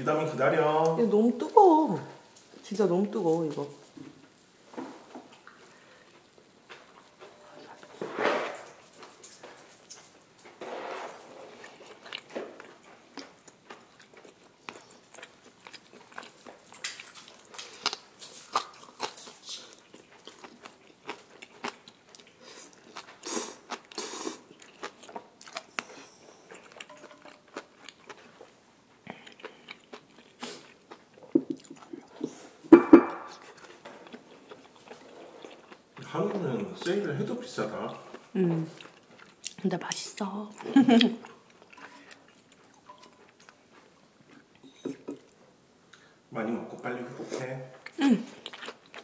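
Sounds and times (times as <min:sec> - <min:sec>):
person chewing: 0:11.0 - 0:37.0, 0:37.9 - 0:46.2, 0:47.4 - 0:49.0.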